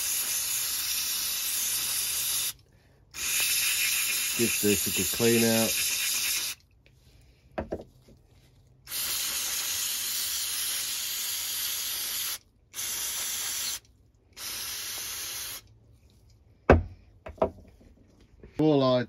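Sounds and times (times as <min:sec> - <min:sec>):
aerosol spray hissing: 0:00.0 - 0:02.6, 0:03.2 - 0:06.6, 0:08.9 - 0:13.8, 0:14.4 - 0:15.7.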